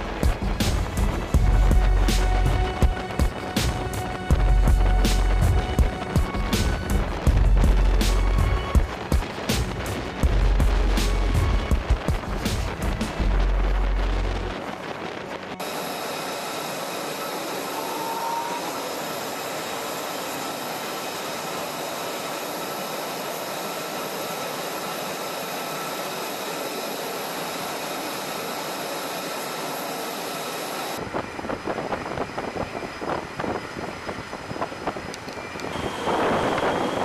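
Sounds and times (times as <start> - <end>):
wind buffeting microphone: 0.0 - 16.7, 30.9 - 37.0
jet engine whine: 0.0 - 37.0.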